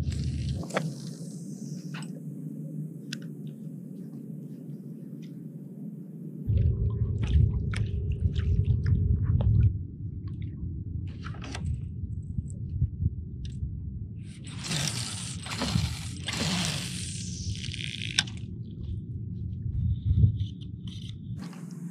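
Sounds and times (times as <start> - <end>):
low rumble: 0.0 - 4.0, 6.3 - 21.9
water lapping against kayak hull: 6.5 - 11.8, 14.4 - 18.4.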